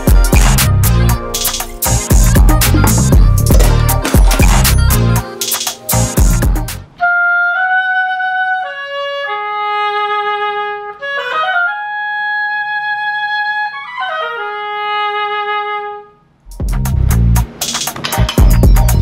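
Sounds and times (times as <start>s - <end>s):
solo woodwind melody: 6.9s - 16.4s.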